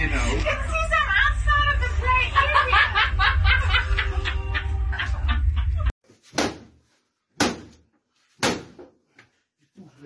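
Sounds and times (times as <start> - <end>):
people laughing and talking: 0.0 - 5.9.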